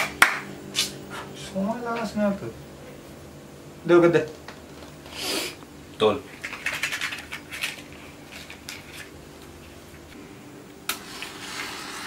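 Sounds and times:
sudden hiss: 5.0s - 5.6s.

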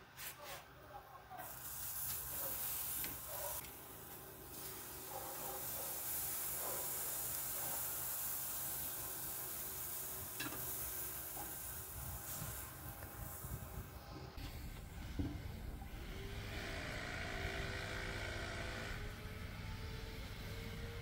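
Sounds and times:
lobster sizzling on grill: 1.4s - 14.0s.

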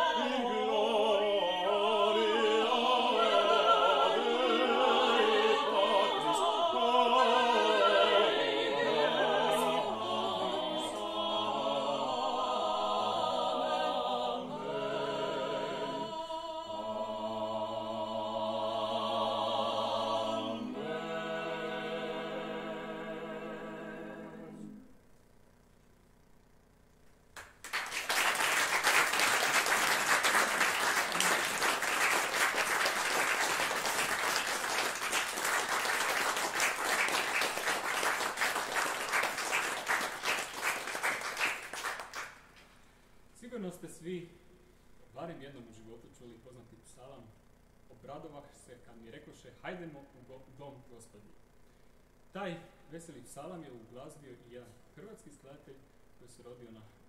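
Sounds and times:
vocal ensemble singing a cappella: 0.0s - 25.0s, 28.6s - 42.3s
audience applauding: 27.4s - 42.4s.

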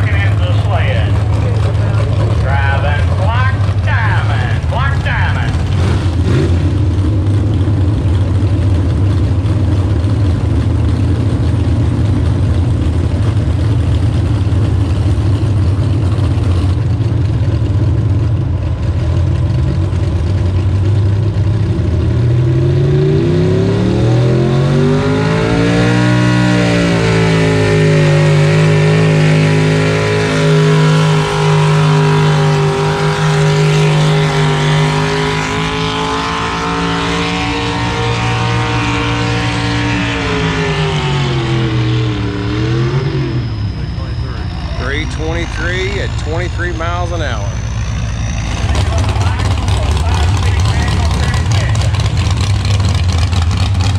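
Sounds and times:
engine revving under load: 0.0s - 7.8s, 21.0s - 53.9s.

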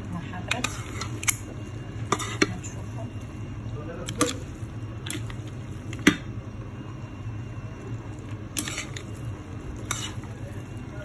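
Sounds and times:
steady low hum: 0.0s - 11.0s
wet squishing of food stirred: 0.5s - 6.1s, 7.6s - 11.0s.

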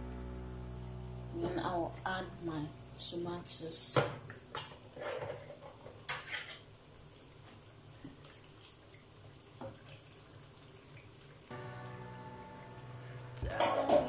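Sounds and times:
background music sustained notes: 0.0s - 3.6s, 11.5s - 14.0s
liquid cooking in a pot: 0.6s - 14.0s.

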